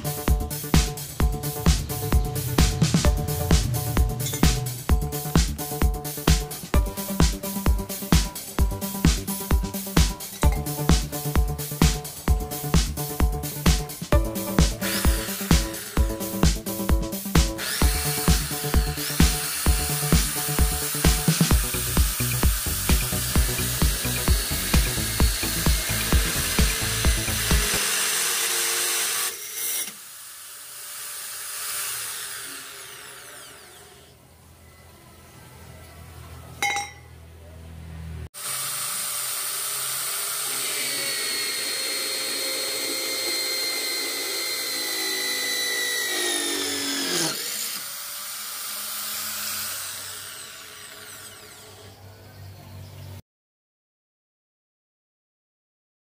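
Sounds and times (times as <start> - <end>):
electric drill boring through steel: 11.6 - 34.2, 38.4 - 52.0.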